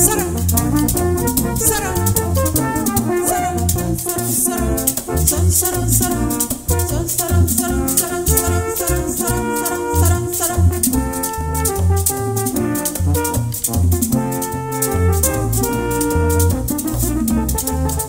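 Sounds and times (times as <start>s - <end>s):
drum beats: 0.0s - 3.9s
bass line: 0.0s - 18.0s
french horns playing merengue: 0.0s - 18.0s.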